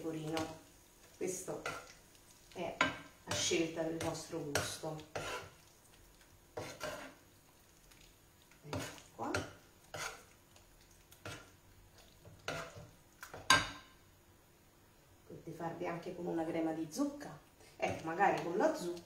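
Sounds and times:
utensil scraping a frying pan: 2.6s - 5.7s, 6.5s - 7.2s, 8.6s - 10.4s, 11.2s - 13.9s.

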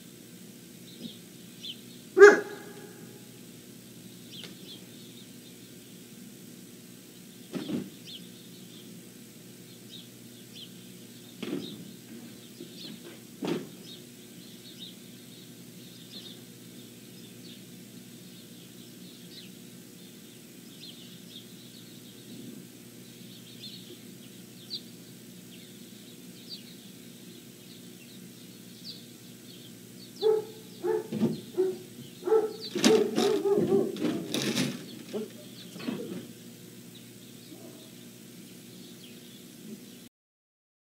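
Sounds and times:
steady low hum: 0.0s - 40.1s
pup calling: 2.2s - 3.1s, 30.2s - 36.2s.

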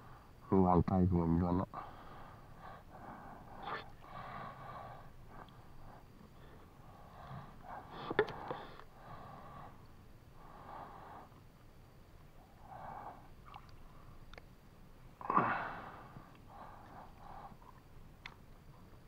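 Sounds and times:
water swishing and splashing: 13.4s - 14.2s.

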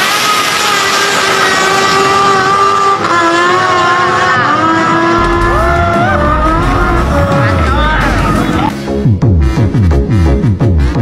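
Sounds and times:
motorcycle engine accelerating: 0.7s - 8.8s.

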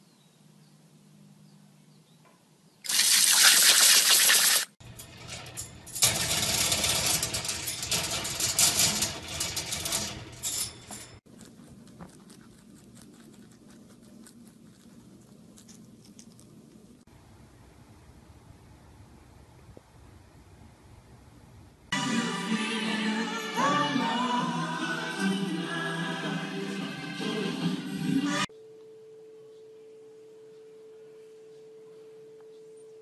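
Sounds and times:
hose nozzle spraying water: 2.8s - 4.8s.

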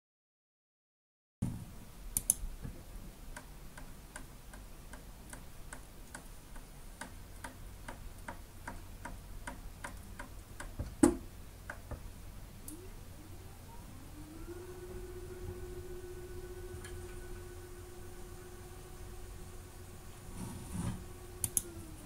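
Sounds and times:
steady low hum: 1.4s - 22.0s
stepper motors ticking: 13.5s - 22.0s.

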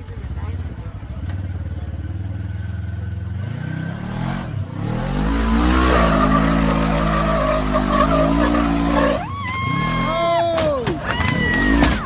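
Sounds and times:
utv engine revving under load: 3.4s - 10.2s.

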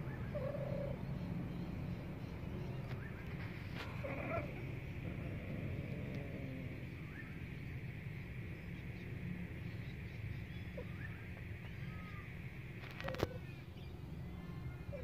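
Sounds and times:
faint bird chirps: 0.0s - 15.0s
low outdoor rumble: 0.0s - 15.0s
cat growling: 3.8s - 7.0s.

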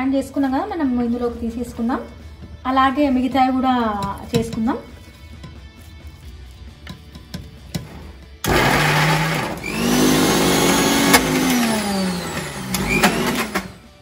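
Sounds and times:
mixer grinder grinding: 7.8s - 14.0s.

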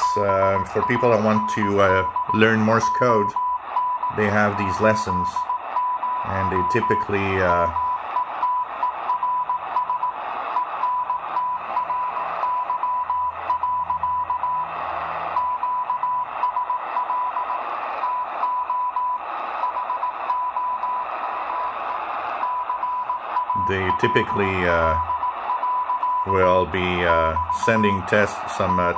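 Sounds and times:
radio band noise hiss: 0.0s - 14.0s, 14.6s - 15.6s, 16.2s - 18.5s, 19.1s - 28.9s
morse code tone: 0.0s - 21.8s, 22.4s - 28.9s.

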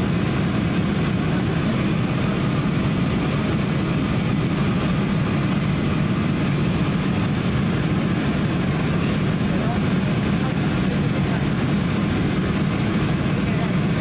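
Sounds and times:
airplane cabin engine drone: 0.0s - 14.0s.

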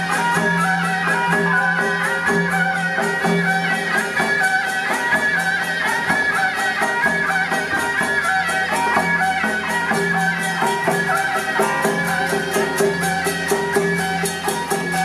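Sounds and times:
cymbals and drums beat: 0.0s - 15.0s
reedy wavering melody: 6.7s - 15.0s.

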